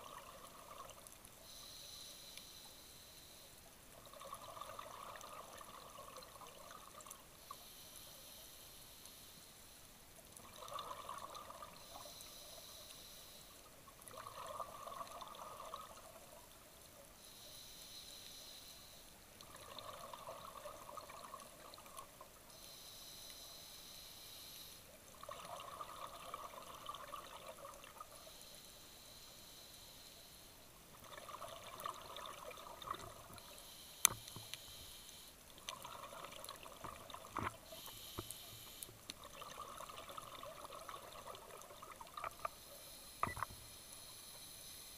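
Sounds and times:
regulator hissing on inhale: 1.4 - 3.5, 37.6 - 38.9.

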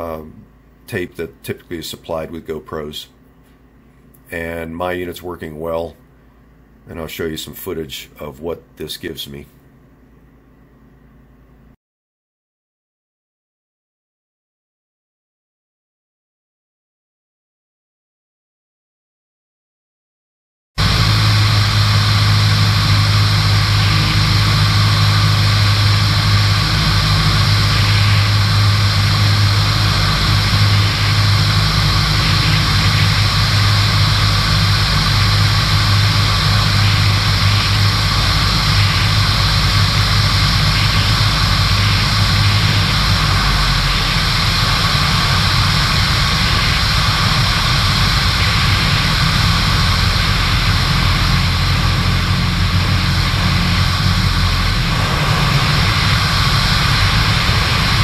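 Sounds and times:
aircraft engine drone: 20.8 - 58.0.

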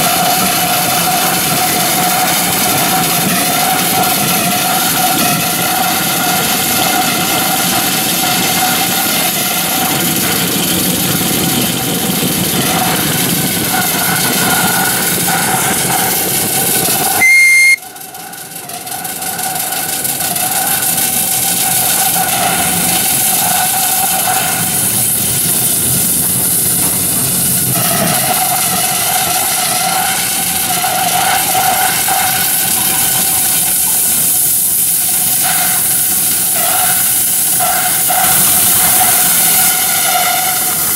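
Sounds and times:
steam engine hissing: 0.0 - 40.9
high-pitched whistle blast: 17.2 - 17.9.

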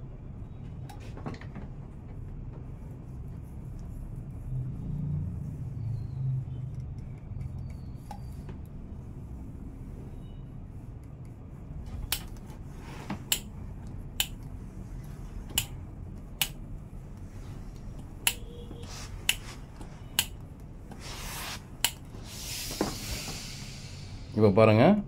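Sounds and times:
sharp irregular clicks: 6.6 - 8.8, 13.3 - 14.6, 15.4 - 18.6
iron rubbing on fabric: 12.5 - 13.8, 14.5 - 24.5.

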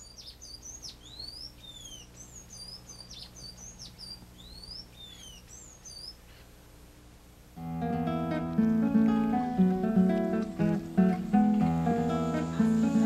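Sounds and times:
birds chirping and singing: 0.0 - 6.2.

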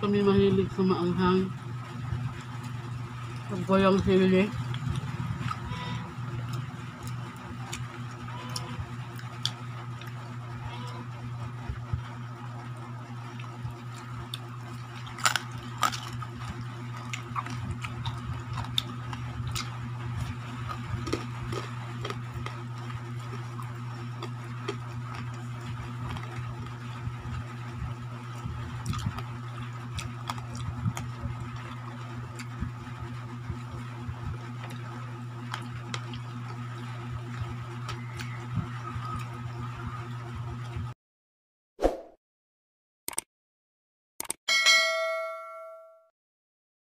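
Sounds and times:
steady low hum: 0.0 - 41.0
short tone: 5.1 - 6.8, 44.5 - 46.1.

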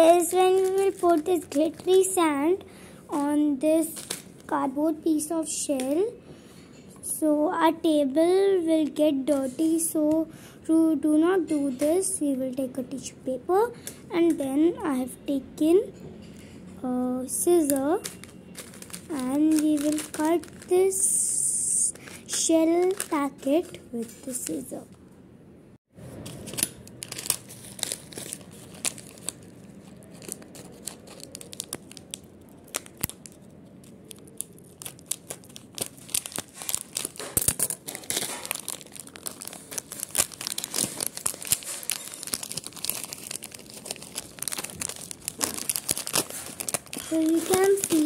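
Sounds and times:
plastic packet crinkling: 0.0 - 2.2, 3.1 - 4.5, 17.6 - 24.7, 26.3 - 48.0.

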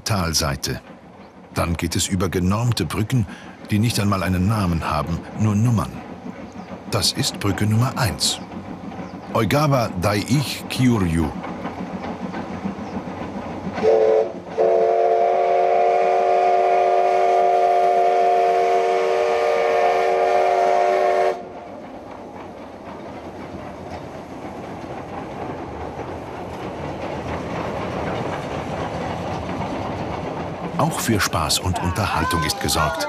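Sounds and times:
train clattering over bridge: 0.0 - 33.0
steam locomotive whistle: 13.8 - 21.5.

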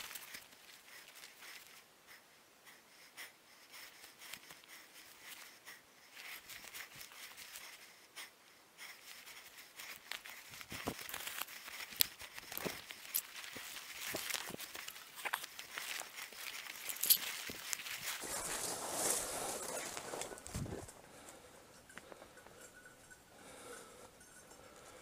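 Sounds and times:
branches brushing clothing: 0.0 - 1.8, 8.9 - 21.4
twigs crackling and snapping: 9.9 - 21.0
footsteps through dry leaves: 10.9 - 21.0.

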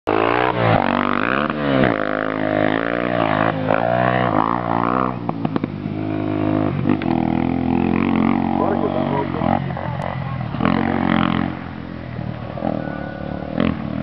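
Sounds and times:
motorcycle engine revving: 0.1 - 14.0.

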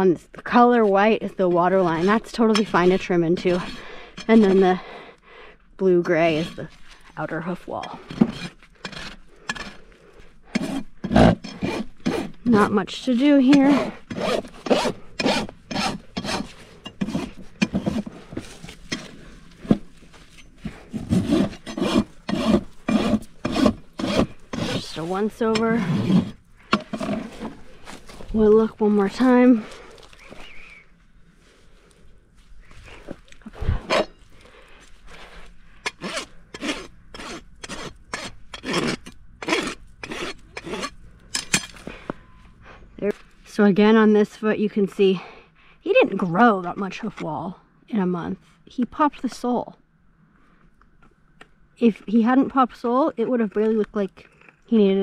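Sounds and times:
hoof rasp scraping hoof: 0.4 - 5.1, 5.8 - 43.4.

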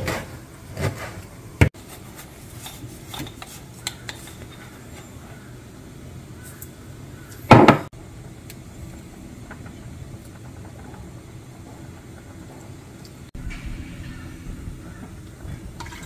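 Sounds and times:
utensil clunk: 7.5 - 7.9.

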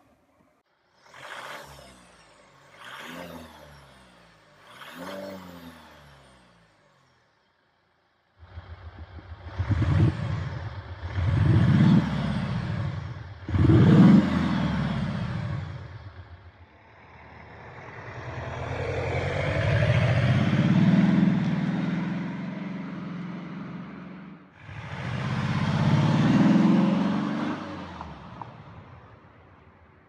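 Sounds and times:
car exhaust accelerating: 8.4 - 28.8.

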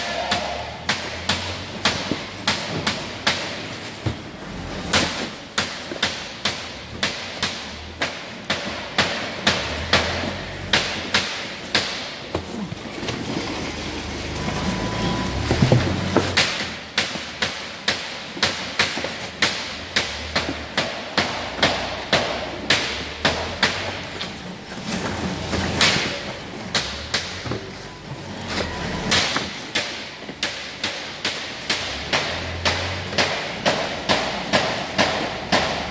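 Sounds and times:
sharp knocks on steel tables: 29.1 - 35.9.

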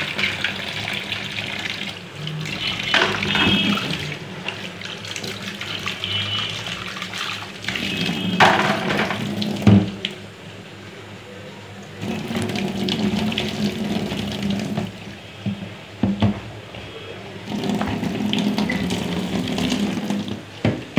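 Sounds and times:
tap water running into sink: 0.0 - 10.2, 11.9 - 16.4, 17.4 - 20.9
cup knocks and splashes: 2.9 - 4.0.

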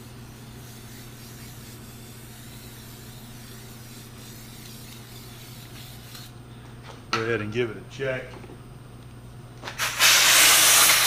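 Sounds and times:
low steady hum: 0.0 - 9.7
aerosol spray hissing: 9.8 - 11.0.

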